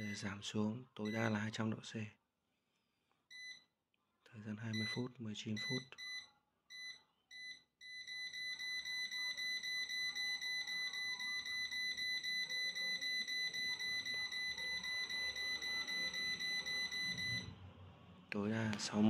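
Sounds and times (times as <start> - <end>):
short high beeps: 5.6 - 17.5.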